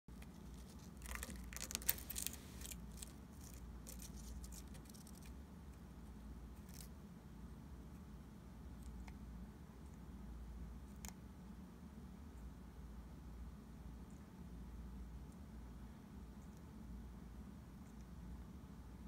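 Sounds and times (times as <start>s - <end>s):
gecko chewing with crackling clicks: 0.1s - 5.4s
steady low hum: 0.1s - 19.0s.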